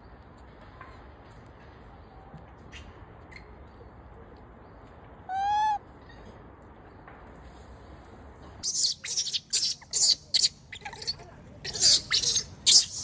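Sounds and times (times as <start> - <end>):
infant macaque screeching: 5.3 - 5.8, 8.6 - 13.0
macaque coo call: 5.3 - 5.8.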